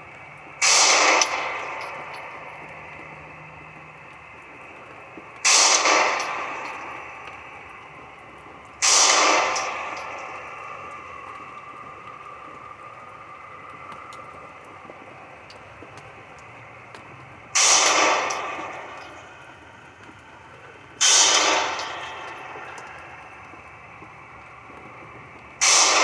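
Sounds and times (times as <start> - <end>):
pistol shots echoing indoors: 0.6 - 2.5, 5.4 - 7.4, 8.8 - 11.0, 17.6 - 19.2, 21.0 - 23.0, 25.6 - 26.0.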